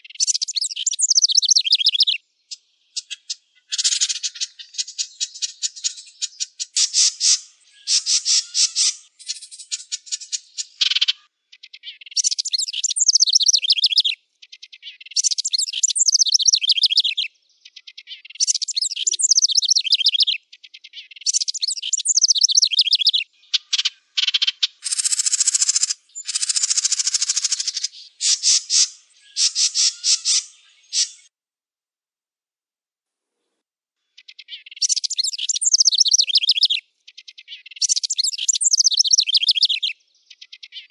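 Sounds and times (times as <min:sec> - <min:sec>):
wren singing: 0:00.0 - 0:31.3, 0:34.1 - 0:40.9.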